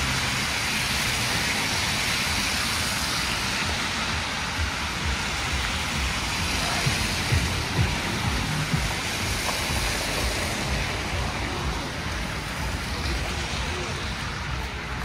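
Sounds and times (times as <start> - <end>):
traffic on slushy pavement: 0.0 - 15.0
wind: 0.0 - 15.0.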